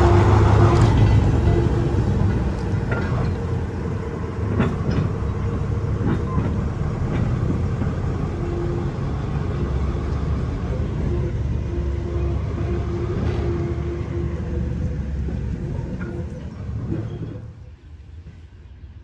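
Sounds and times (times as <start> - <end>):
wagon and wheel clanks: 0.0 - 11.4, 14.6 - 17.7
diesel locomotive engine rumble: 0.0 - 19.0.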